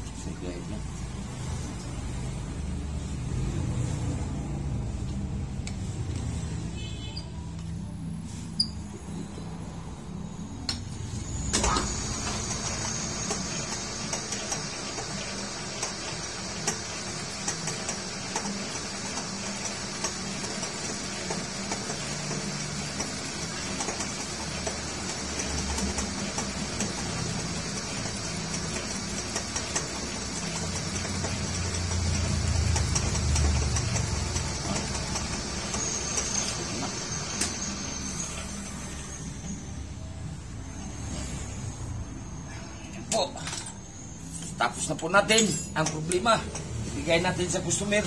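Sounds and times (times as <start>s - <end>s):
metal lathe cutting steel: 11.1s - 39.6s.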